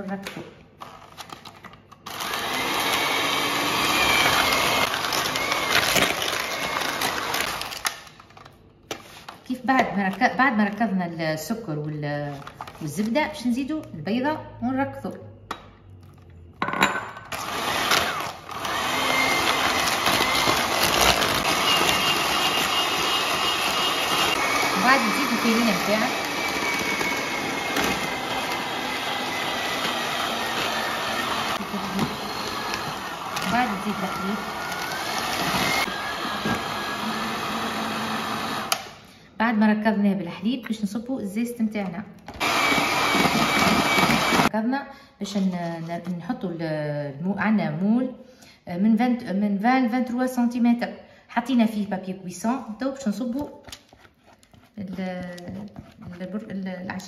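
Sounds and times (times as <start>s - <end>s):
electric hand mixer running: 2.1s - 7.8s, 17.3s - 38.9s, 42.4s - 44.5s.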